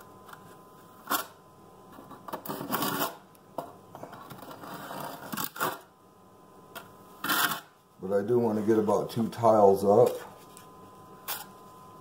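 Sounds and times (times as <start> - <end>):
trowel scraping mortar: 2.4 - 3.2, 7.2 - 7.7.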